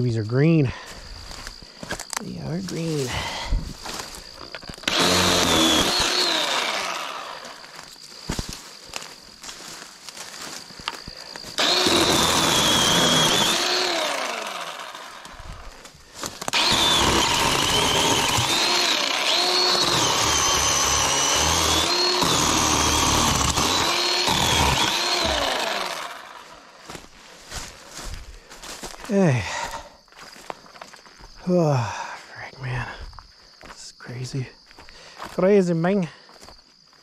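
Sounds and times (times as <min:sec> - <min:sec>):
chainsaw cutting brush: 0:02.5 - 0:29.0.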